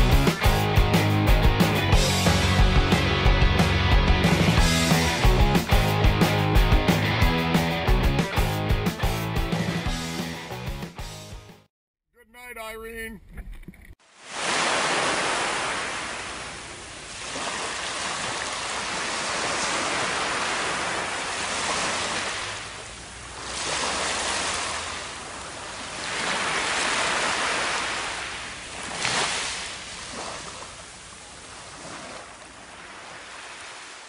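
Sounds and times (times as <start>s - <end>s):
waves washing onto sandy beach: 14.0s - 34.0s.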